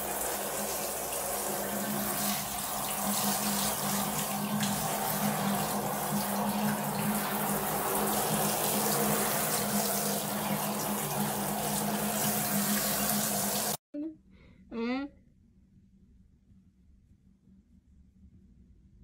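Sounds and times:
shower water spraying: 0.0 - 13.8.

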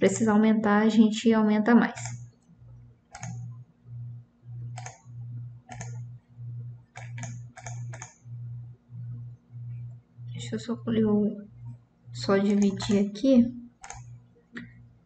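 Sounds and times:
computer mouse clicks: 1.9 - 2.4, 3.1 - 3.6, 4.6 - 6.1, 6.9 - 8.2, 12.4 - 13.0, 13.8 - 14.8
pulsing low hum: 2.0 - 15.0.

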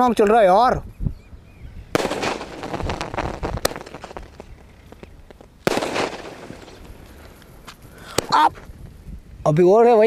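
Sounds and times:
firework bang: 1.9 - 4.5, 5.6 - 7.1
firework shells crackling: 1.9 - 9.0.

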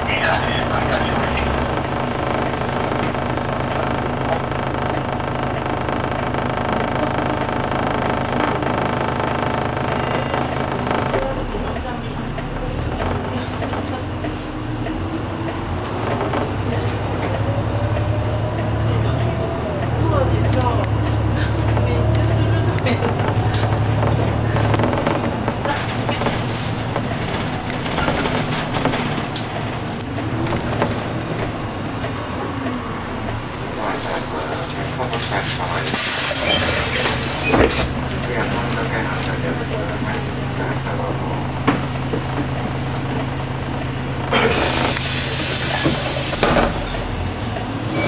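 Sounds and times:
bus engine hum: 0.0 - 48.0
road noise: 0.0 - 48.0
rattles and clicks: 19.9 - 40.2.

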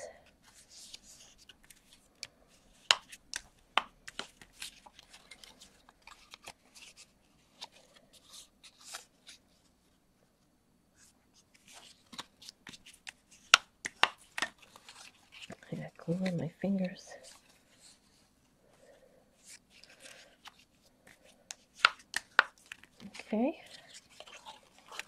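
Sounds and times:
paper rustling and scraping: 4.0 - 9.7, 11.0 - 18.3, 19.4 - 25.0.

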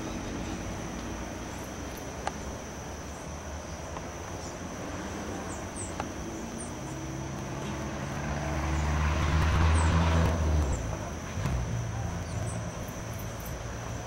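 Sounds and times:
engine hum passing by: 4.4 - 14.0.

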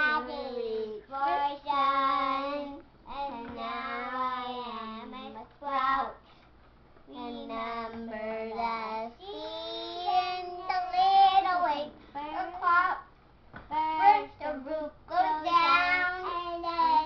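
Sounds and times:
girls singing unaccompanied: 0.0 - 6.2, 13.7 - 17.0.

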